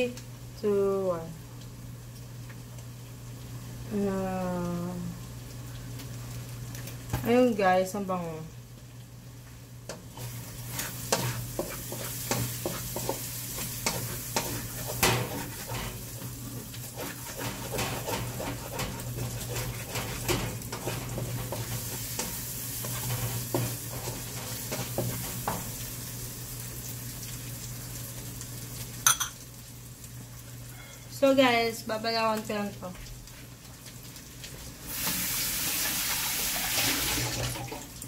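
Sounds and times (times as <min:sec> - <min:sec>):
food sizzling in frying pan: 0:00.0 - 0:38.0
spatula scraping pan: 0:09.9 - 0:25.7.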